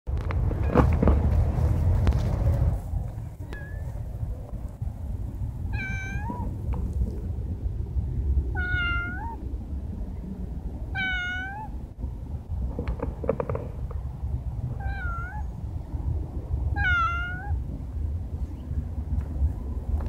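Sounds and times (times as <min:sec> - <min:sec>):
cat meowing: 0:05.7 - 0:06.6, 0:08.5 - 0:09.4, 0:10.9 - 0:11.8, 0:14.8 - 0:15.6, 0:16.7 - 0:17.6.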